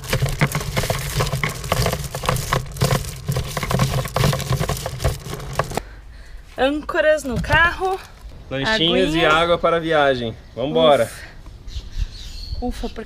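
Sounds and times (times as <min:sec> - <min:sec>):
anchor chain rattling and clinking: 0:00.0 - 0:05.8.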